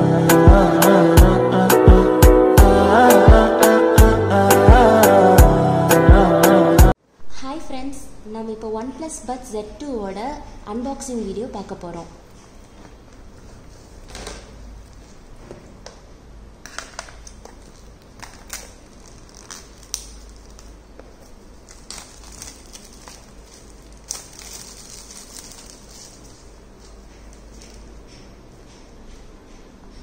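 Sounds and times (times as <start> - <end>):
plastic wrap crinkling: 16.7 - 28.1.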